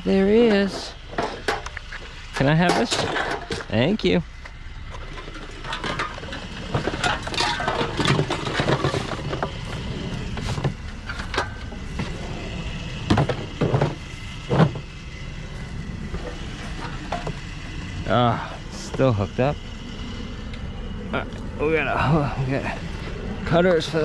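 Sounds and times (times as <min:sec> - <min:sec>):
scrap items clattering: 0:02.6 - 0:03.8, 0:05.0 - 0:12.4
loud thumps: 0:13.0 - 0:14.9.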